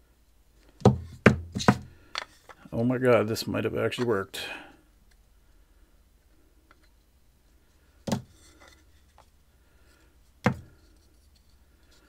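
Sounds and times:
sharp plastic knocks: 0:00.8 - 0:02.3, 0:08.0 - 0:08.3.

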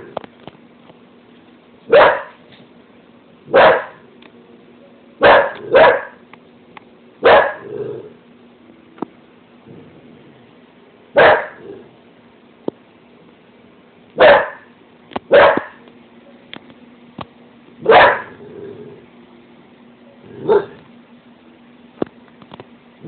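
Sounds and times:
dog barking: 0:01.9 - 0:02.4, 0:03.5 - 0:04.0, 0:05.2 - 0:06.2, 0:07.2 - 0:07.8, 0:11.2 - 0:11.7, 0:14.2 - 0:14.7, 0:15.3 - 0:15.8, 0:17.8 - 0:18.4, 0:20.4 - 0:20.8.

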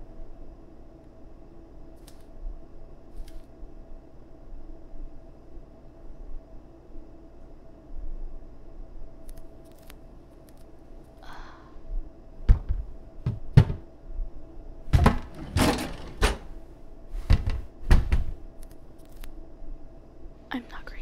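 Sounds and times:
cabinet doors banging shut: 0:12.5 - 0:13.9, 0:14.9 - 0:16.6, 0:17.2 - 0:18.4.

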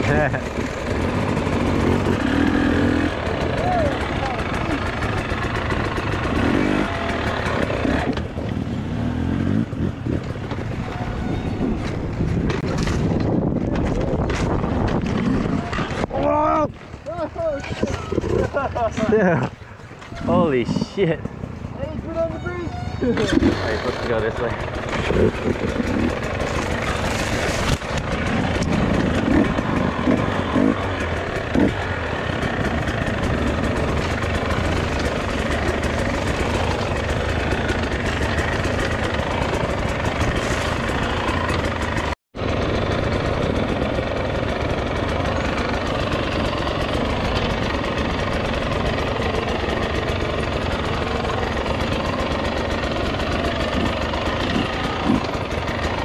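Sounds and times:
dirt bike engine running: 0:00.0 - 0:56.0.

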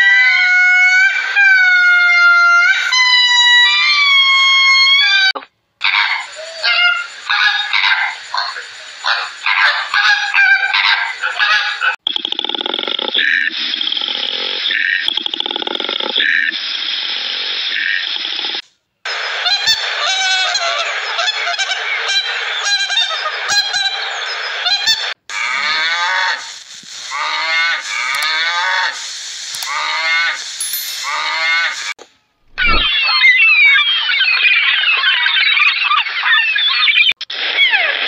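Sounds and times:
waterfowl honking: 0:06.0 - 0:12.0
steady hiss: 0:26.4 - 0:31.9.

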